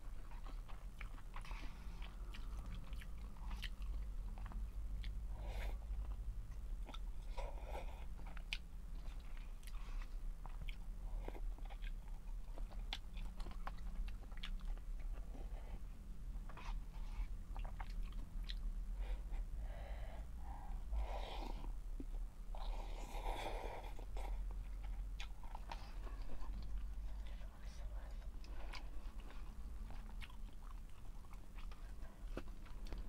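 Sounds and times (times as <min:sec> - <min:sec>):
steady low hum: 0:00.0 - 0:33.0
chewing and mouth smacks: 0:00.1 - 0:15.7, 0:16.4 - 0:18.8, 0:22.0 - 0:33.0.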